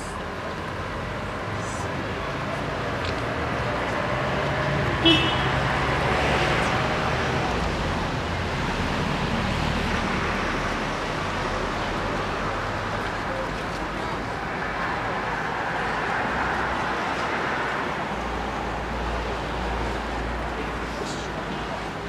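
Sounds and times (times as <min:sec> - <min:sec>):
car horn toot: 0:05.0 - 0:05.6.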